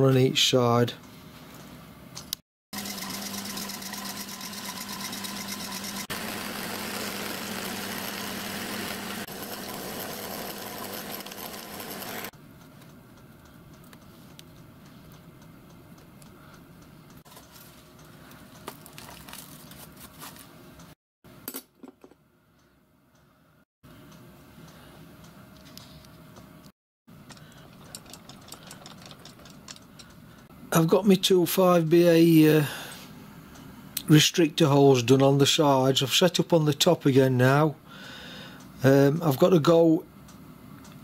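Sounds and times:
drilling machine running: 2.8s - 12.3s.

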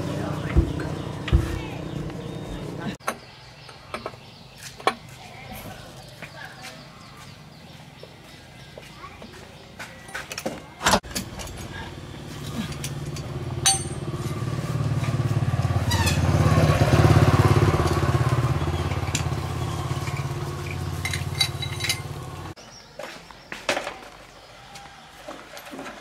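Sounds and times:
vehicle engine running: 0.0s - 3.0s, 11.2s - 22.6s
light metal clinks: 11.1s - 14.4s, 19.0s - 22.2s.

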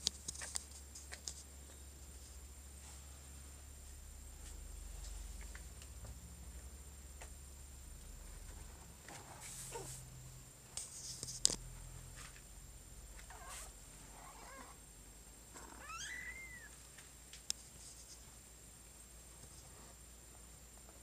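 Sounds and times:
cat mewing: 15.6s - 16.8s.

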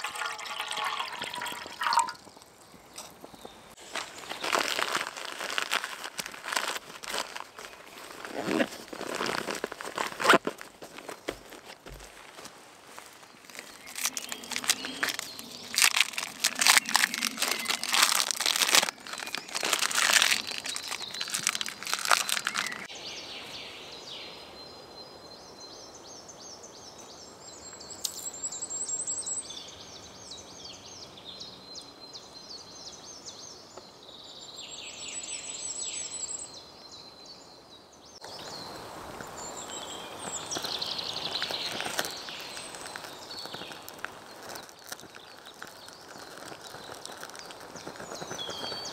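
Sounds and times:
outdoor gear rustling and crinkling: 0.0s - 22.9s, 38.2s - 48.9s
songbird singing: 0.0s - 48.9s.

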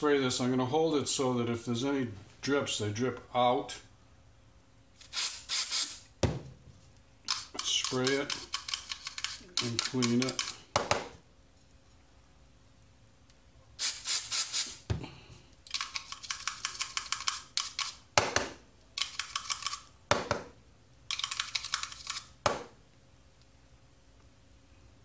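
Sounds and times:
aerosol spray: 5.0s - 6.1s, 7.3s - 10.5s, 13.8s - 14.9s.

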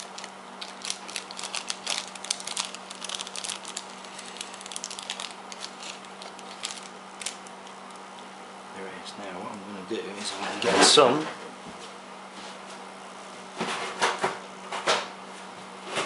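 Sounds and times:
plastic bag crinkling: 0.0s - 8.2s.

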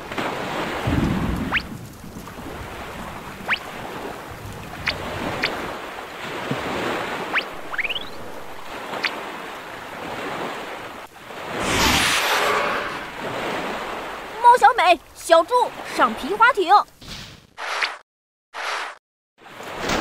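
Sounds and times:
waves: 0.0s - 16.9s, 18.6s - 20.0s
wind: 0.0s - 18.0s, 18.6s - 20.0s
short rising whistles: 7.6s - 8.6s.

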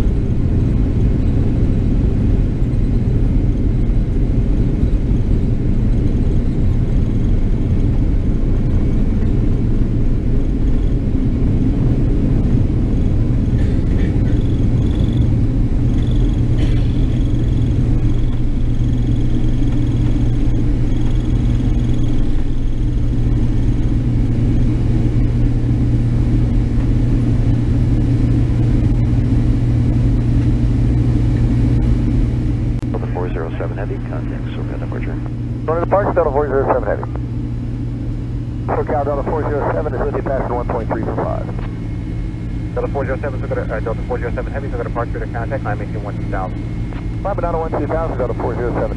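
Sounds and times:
jet engine rumble inside cabin: 0.0s - 48.9s
faint high whine: 12.7s - 48.9s.

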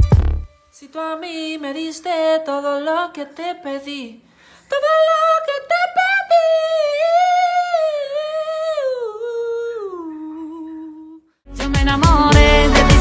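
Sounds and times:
man singing unaccompanied: 11.6s - 13.0s.

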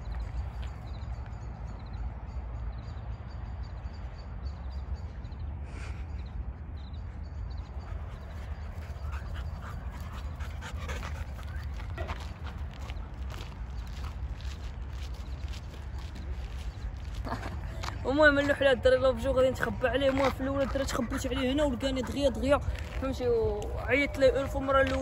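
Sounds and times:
wind rumble on microphone: 0.0s - 25.0s
dog panting: 7.8s - 14.0s, 19.5s - 25.0s.

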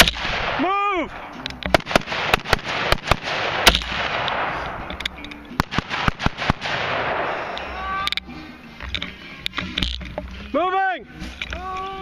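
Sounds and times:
rifle shots with echo: 0.0s - 7.6s.

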